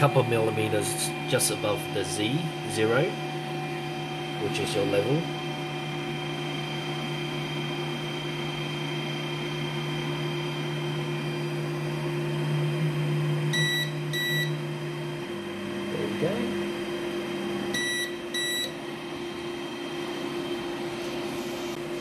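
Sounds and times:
printer motor humming: 0:00.0 - 0:22.0
short electronic beeps: 0:13.5 - 0:14.6.

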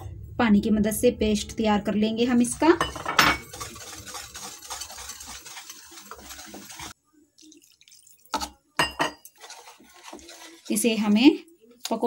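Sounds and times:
whisk knocking against bowl: 0:02.8 - 0:06.9
water pouring into flour: 0:03.4 - 0:08.5.

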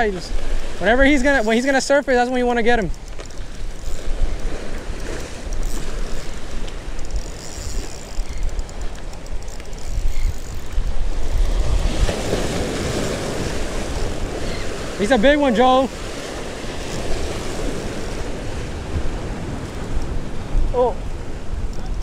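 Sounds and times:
wind buffeting microphone: 0:00.0 - 0:22.0
waves washing against rocks: 0:09.8 - 0:22.0.

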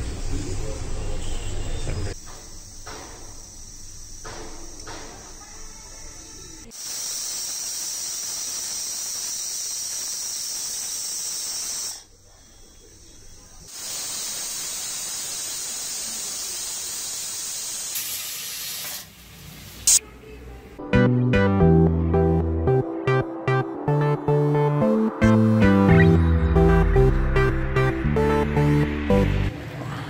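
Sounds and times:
pressure cooker whistling: 0:06.7 - 0:18.0.

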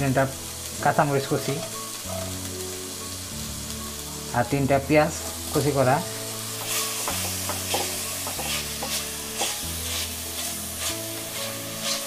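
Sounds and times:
soft background music: 0:00.0 - 0:12.0
vegetables sizzling in hot oil: 0:00.0 - 0:12.0
spatula scraping a pan: 0:06.6 - 0:12.0.

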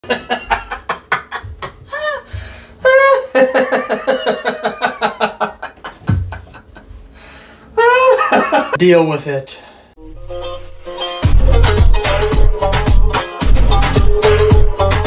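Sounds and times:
person laughing in rhythmic bursts: 0:00.0 - 0:07.0, 0:07.8 - 0:08.8
music with ticking beat: 0:11.2 - 0:15.0.

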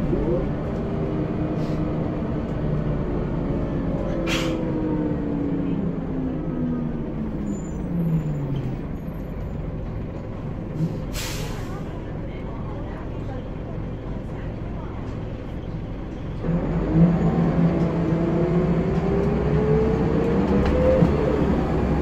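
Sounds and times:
bus engine drone and whine: 0:00.0 - 0:22.0.

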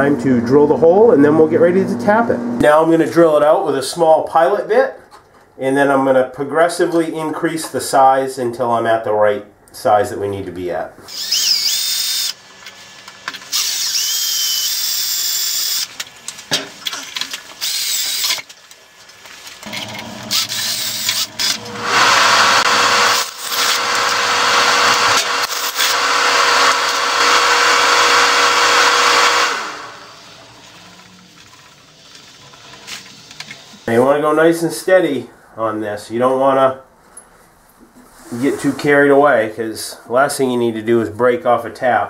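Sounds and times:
cordless drill boring steel: 0:11.1 - 0:16.0, 0:17.6 - 0:18.5, 0:19.6 - 0:31.0.

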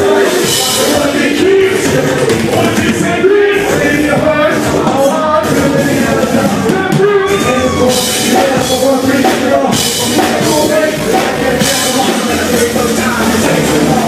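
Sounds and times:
drum kit: 0:00.0 - 0:14.0
lead vocal through microphone: 0:00.0 - 0:14.0
live band music: 0:00.0 - 0:14.0.

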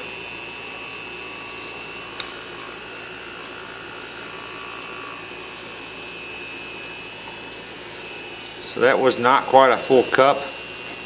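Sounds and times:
compressor humming: 0:00.0 - 0:11.0
sharp click: 0:02.1 - 0:02.5.

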